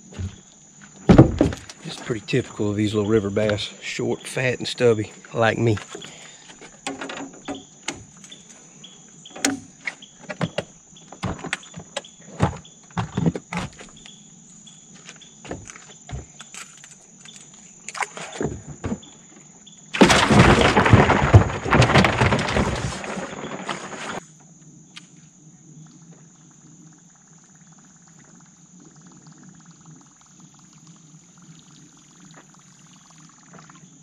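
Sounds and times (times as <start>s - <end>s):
insects droning: 0.0s - 34.0s
knocks and clicks of gear: 5.8s - 8.6s, 9.3s - 14.2s
loud rough rustling: 20.0s - 24.2s.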